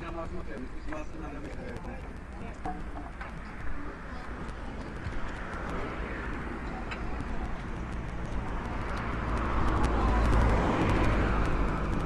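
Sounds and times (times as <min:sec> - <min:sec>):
road vehicle passing: 0:01.6 - 0:12.0.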